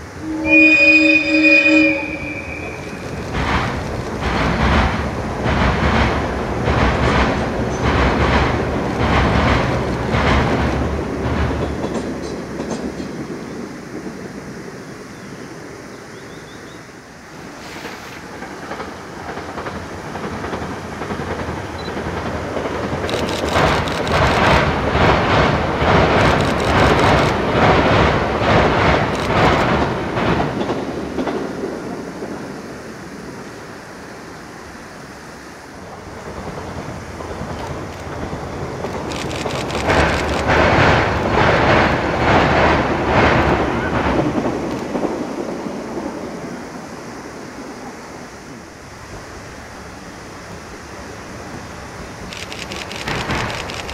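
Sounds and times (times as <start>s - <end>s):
train rumbling over bridge: 0.0s - 53.9s
wheels clattering over rail joints: 2.2s - 13.5s, 17.6s - 32.4s, 35.9s - 45.7s, 52.0s - 53.9s.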